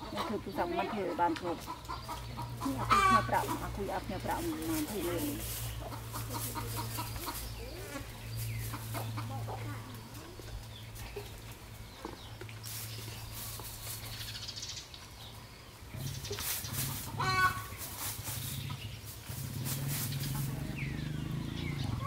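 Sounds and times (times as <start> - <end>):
chickens clucking: 0.0 - 22.0
dry scratching through hair: 2.7 - 9.0, 12.6 - 14.4, 16.1 - 20.7.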